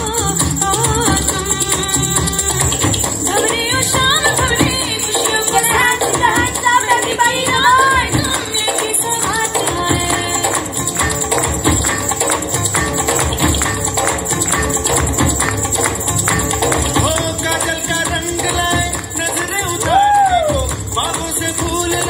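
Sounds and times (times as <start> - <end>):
dance song playing loud: 0.0 - 22.0
jingling tambourine-like percussion: 0.0 - 22.0
person singing: 16.9 - 22.0.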